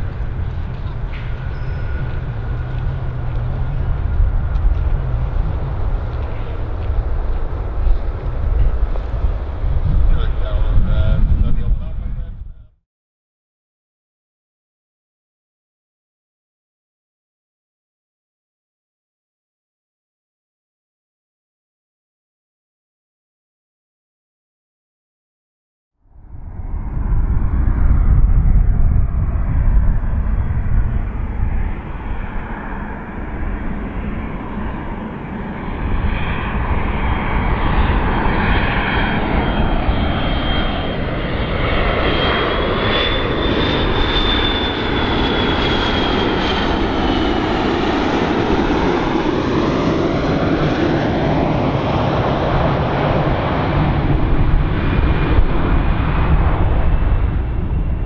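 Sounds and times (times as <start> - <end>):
high jet whine: 0.0 - 12.8, 26.1 - 58.0
jet roar: 0.0 - 12.8, 26.1 - 58.0.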